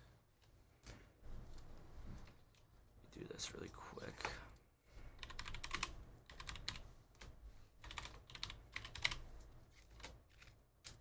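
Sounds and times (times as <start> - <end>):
faint keyboard typing: 4.1 - 11.0.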